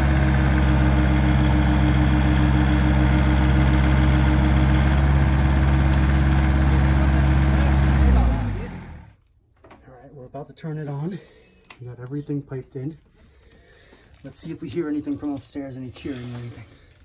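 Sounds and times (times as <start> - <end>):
excavator diesel engine: 0.0 - 9.2.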